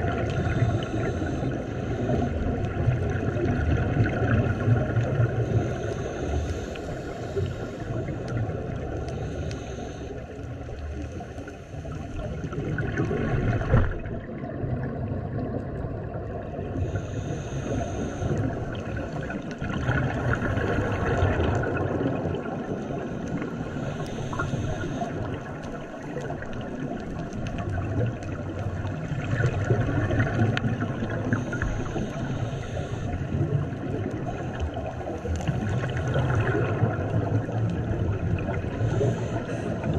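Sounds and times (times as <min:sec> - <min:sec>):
gurgling exhaust bubbles: 0:00.0 - 0:05.9, 0:10.3 - 0:17.1, 0:17.9 - 0:39.9
hissing regulator inhale: 0:00.1 - 0:02.6, 0:05.2 - 0:12.2, 0:16.8 - 0:19.6, 0:22.8 - 0:25.8, 0:31.0 - 0:36.5, 0:38.7 - 0:39.9.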